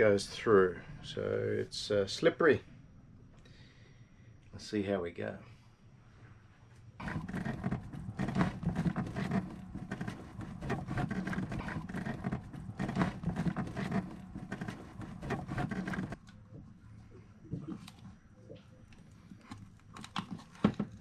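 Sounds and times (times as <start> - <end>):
cables scraping and rustling: 7.0 - 16.2.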